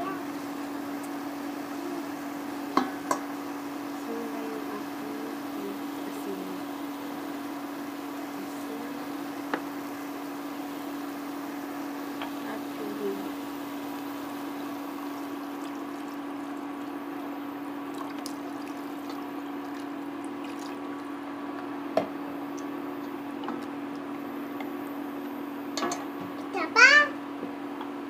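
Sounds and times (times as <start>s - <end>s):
steady low hum: 0.0s - 28.0s
water pouring into a pan: 13.6s - 21.2s.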